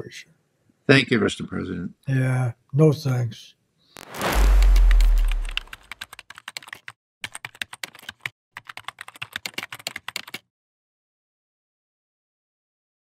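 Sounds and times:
deep boom: 0:04.0 - 0:05.9
rapid irregular clicks: 0:05.3 - 0:10.4.

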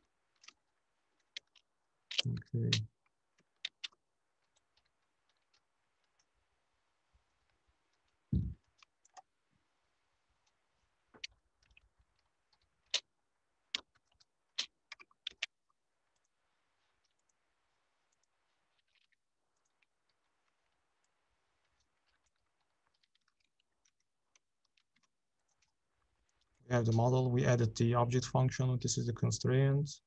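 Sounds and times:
short low thump: 0:08.4 - 0:08.6.

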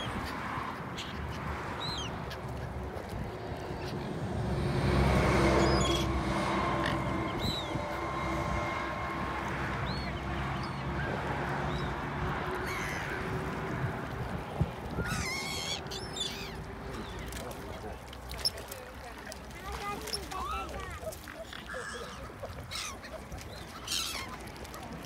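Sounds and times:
outdoor background noise: 0:00.0 - 0:25.0
vehicle engine hum: 0:01.5 - 0:18.3.

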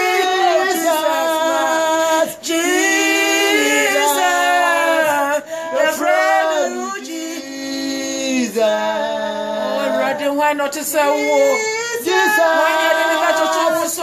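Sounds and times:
singers breathing: 0:05.4 - 0:05.8.

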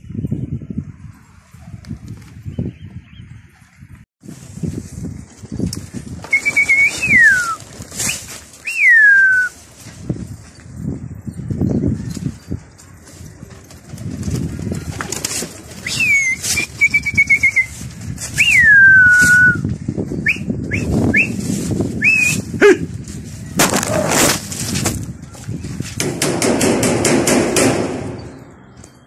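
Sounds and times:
rapid wing flapping: 0:04.3 - 0:09.0
pigeon whistles: 0:06.3 - 0:09.6, 0:15.8 - 0:22.5.

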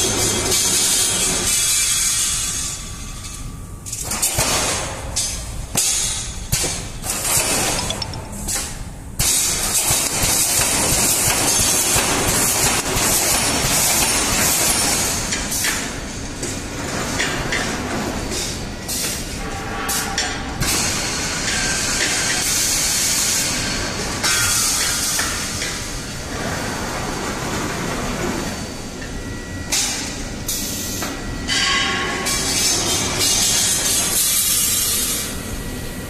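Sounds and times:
welding heads clanking: 0:05.2 - 0:12.0.

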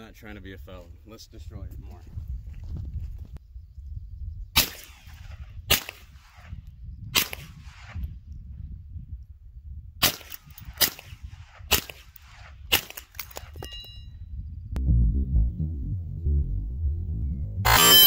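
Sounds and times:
gunshots with short echo: 0:04.6 - 0:08.0, 0:10.0 - 0:13.5.

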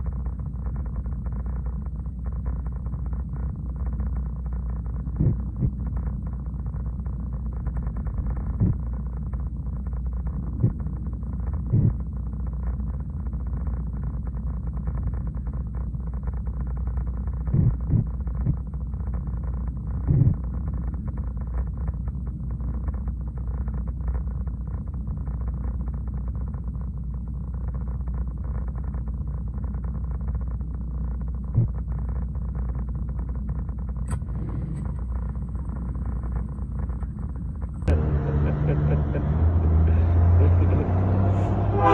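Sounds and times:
short low thumps: 0:05.1 - 0:05.8, 0:10.6 - 0:10.8
diesel truck engine idling: 0:37.9 - 0:41.9.

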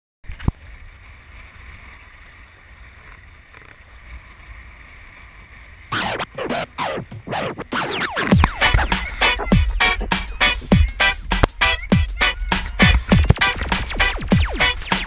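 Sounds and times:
loud electronic music: 0:05.9 - 0:15.0
record scratching: 0:05.9 - 0:15.0
sharp click: 0:11.3 - 0:11.6.

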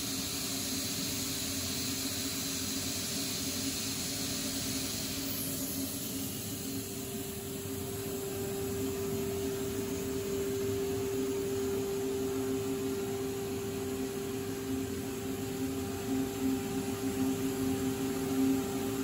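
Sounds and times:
compressed air blasting hiss: 0:00.0 - 0:07.0.

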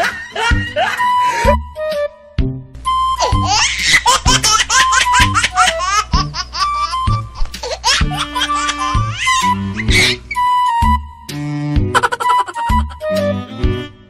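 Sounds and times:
laughter: 0:00.0 - 0:01.3, 0:12.0 - 0:12.6
playful comic music: 0:00.0 - 0:14.0.

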